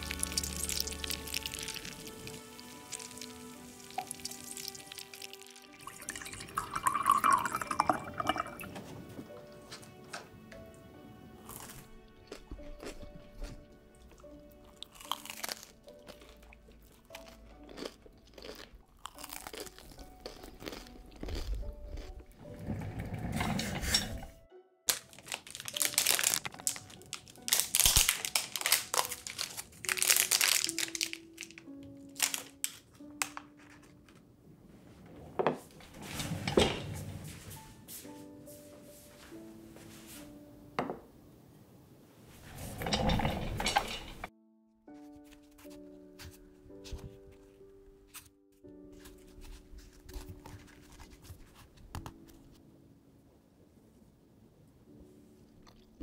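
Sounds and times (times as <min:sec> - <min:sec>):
wrapper crinkling: 0:00.0 - 0:08.4, 0:24.9 - 0:34.2, 0:49.0 - 0:52.5
soft background music: 0:00.0 - 0:56.0
milk pouring into a glass: 0:00.1 - 0:08.8.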